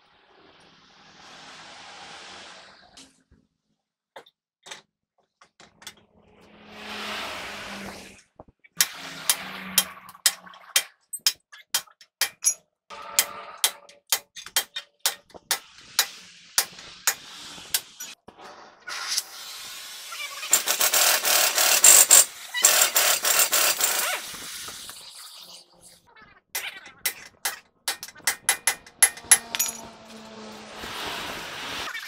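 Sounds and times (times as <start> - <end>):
hammer striking steel: 8.8 - 18.2, 26.6 - 30.1.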